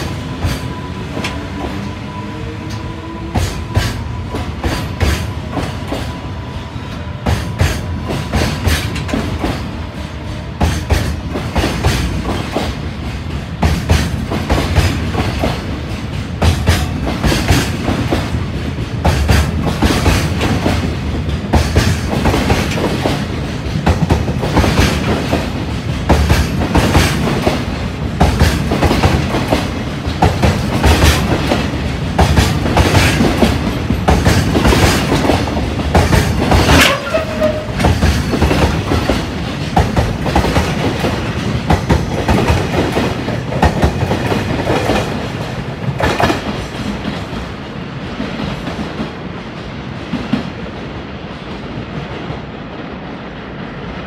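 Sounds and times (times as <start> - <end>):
train wheels clacking over rail joints: 6.9 - 47.6
train wheel squeal: 36.7 - 38.3.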